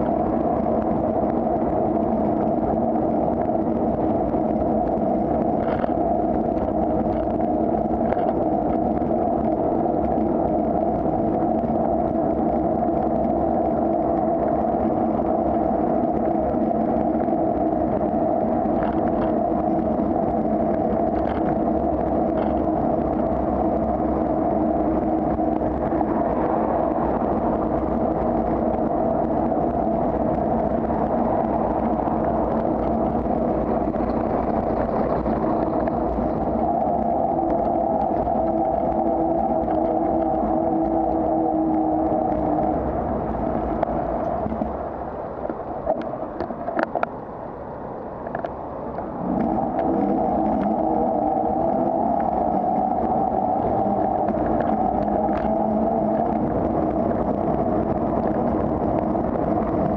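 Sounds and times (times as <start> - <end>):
wind and road noise: 0.0 - 59.9
faint clicks: 12.5 - 26.5, 45.4 - 47.2, 48.2 - 50.9, 51.6 - 59.9.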